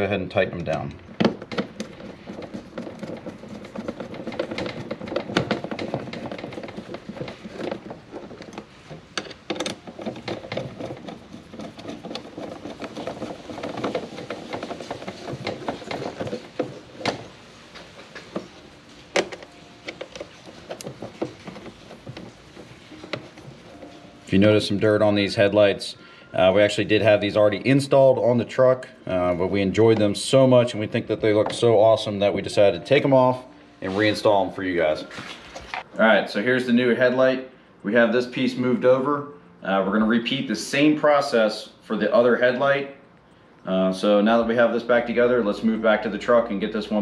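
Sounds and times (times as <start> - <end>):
screws clicking and creaking: 0.6 - 17.4
plastic housing knocking: 0.6 - 24.0.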